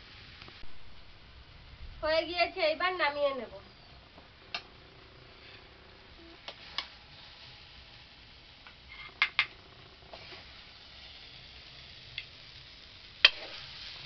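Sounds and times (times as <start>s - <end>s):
metal spatula scraping wok: 13.2s - 14.0s.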